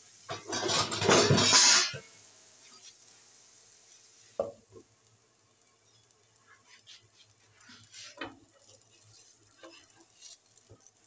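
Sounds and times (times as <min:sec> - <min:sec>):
food sizzling in oil: 0:00.0 - 0:11.0
spatula stirring and scraping a pan: 0:00.3 - 0:03.1, 0:05.6 - 0:11.0.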